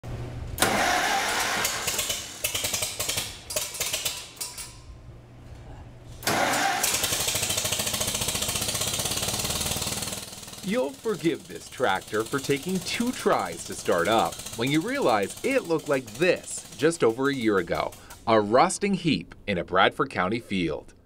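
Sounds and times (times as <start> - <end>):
tractor engine running steadily: 0.6 - 4.2, 6.2 - 18.2
tractor engine cranking and sputtering: 0.6 - 4.7, 6.2 - 18.4.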